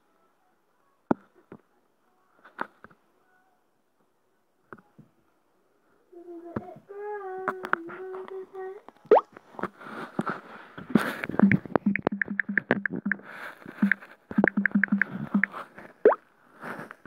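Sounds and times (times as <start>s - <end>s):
taps on touchscreen keyboard: 11.4s - 15.6s.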